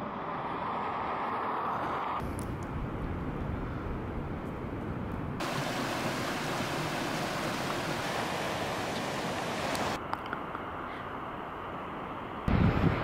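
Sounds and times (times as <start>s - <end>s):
mountain stream rushing: 5.4s - 10.0s.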